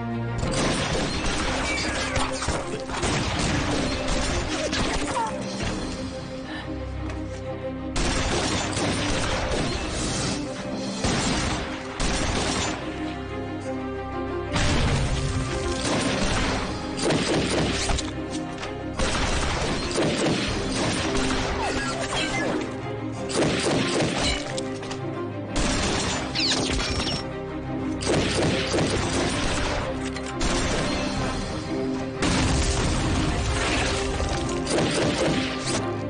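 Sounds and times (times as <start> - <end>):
dramatic orchestral film score: 0.0 - 36.0
crashes and shattering impacts: 32.2 - 35.6.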